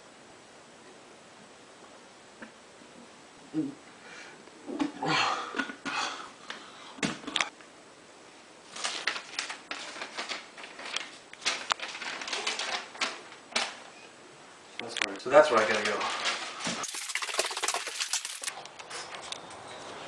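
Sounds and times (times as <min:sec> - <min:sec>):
rustling and scratching: 0:15.7 - 0:19.2.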